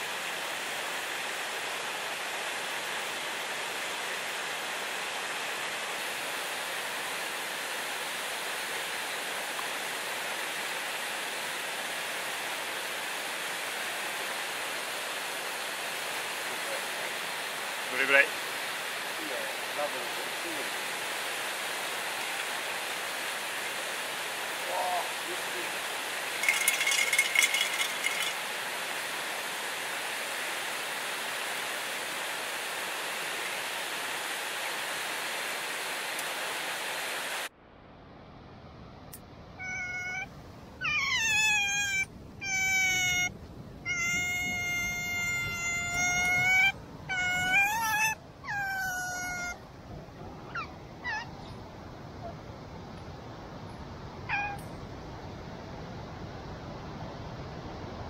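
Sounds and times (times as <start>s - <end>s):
river water rushing: 0.0s - 37.5s
high drawn-out animal calls: 26.4s - 28.4s, 39.6s - 49.6s, 50.4s - 52.4s, 54.3s - 54.6s
faint short animal calls: 39.6s - 49.6s, 54.3s - 54.6s.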